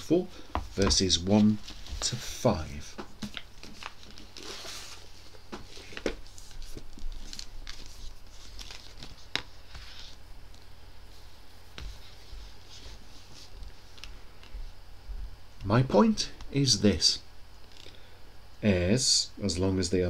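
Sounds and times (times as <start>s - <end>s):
paper rustling: 3.2s - 10.2s.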